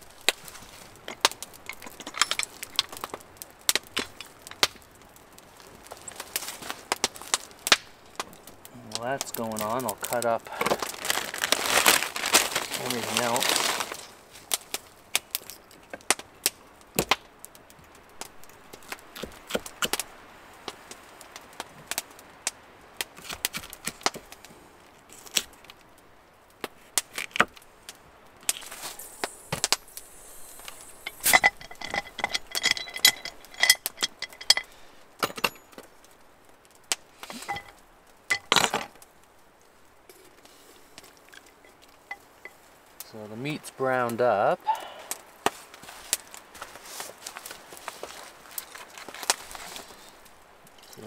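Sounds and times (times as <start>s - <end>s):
ringing metallic clinks: 29.2s - 35.8s, 37.4s - 38.5s.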